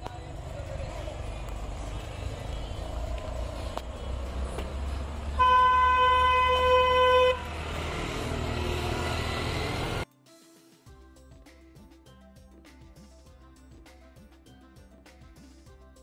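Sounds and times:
low outdoor rumble: 0.0 - 5.4
vehicle horn: 5.3 - 7.6.

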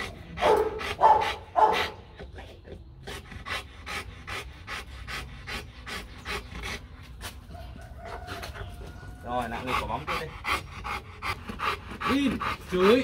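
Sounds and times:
dog panting: 0.0 - 13.0
dog barking: 0.4 - 2.0.

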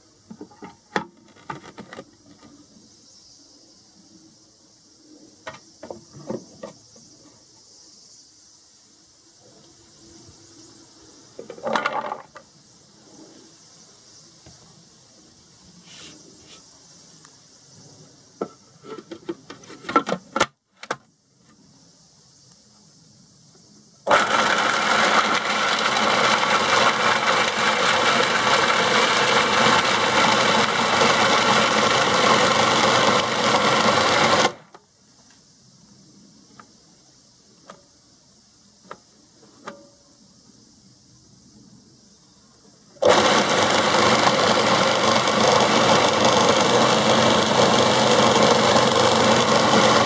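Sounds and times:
mixer motor whirring: 24.1 - 34.6, 43.0 - 50.0.

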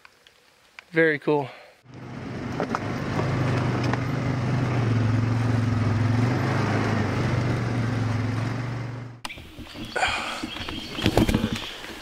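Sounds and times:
atv engine droning: 1.9 - 10.6.

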